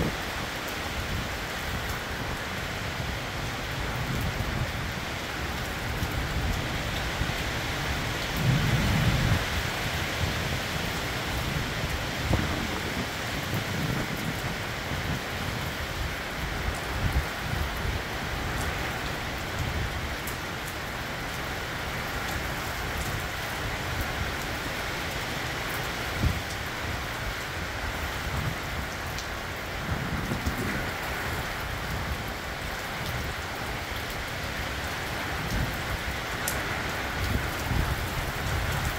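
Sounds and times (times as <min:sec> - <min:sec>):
heavy rain: 0:00.0 - 0:38.9
thunder rumbling: 0:08.2 - 0:11.0.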